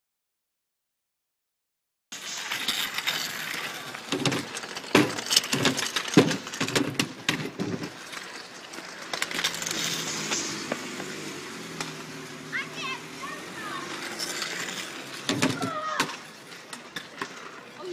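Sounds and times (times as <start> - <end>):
kick scooters rattling: 2.2 - 17.9
scooters clacking on plastic ramp: 2.7 - 17.9
children's voices: 12.2 - 14.6, 15.3 - 16.3.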